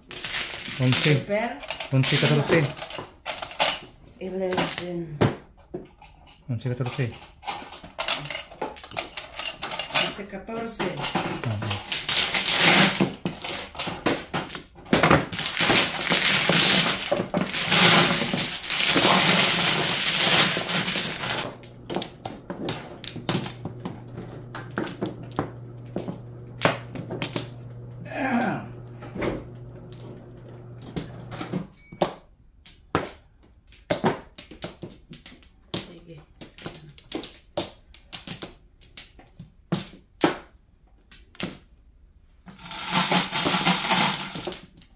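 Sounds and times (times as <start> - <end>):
mahjong tiles clattering: 0.0 - 3.9, 6.3 - 23.7, 42.6 - 44.9
table motor humming: 42.5 - 44.5
tiles clicking: 42.5 - 44.9.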